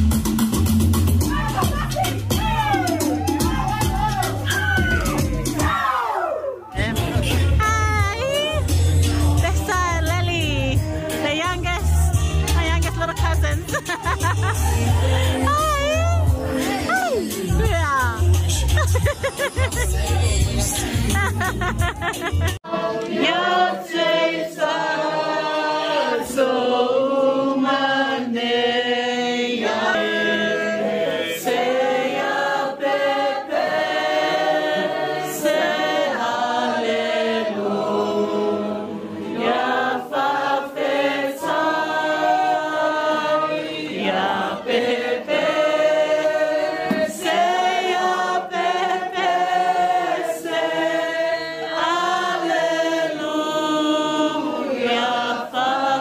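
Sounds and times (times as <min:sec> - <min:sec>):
choir singing: 0:22.6 - 0:56.0.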